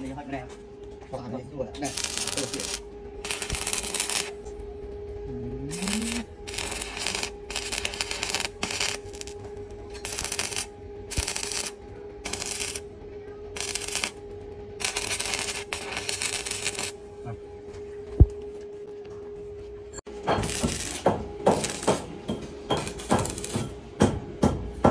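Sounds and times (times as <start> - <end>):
steady hum: 0.0 - 24.9
welding arc crackling: 1.8 - 4.5, 5.6 - 12.9, 13.6 - 17.0, 20.4 - 22.1, 22.7 - 23.8.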